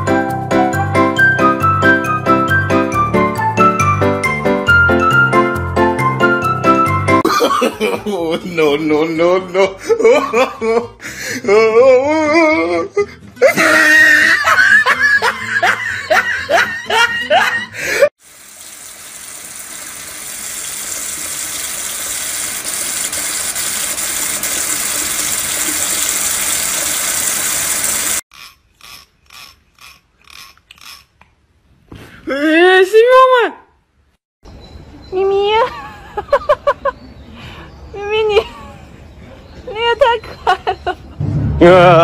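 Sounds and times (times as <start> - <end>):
tap water pouring into sink: 18.2 - 28.2.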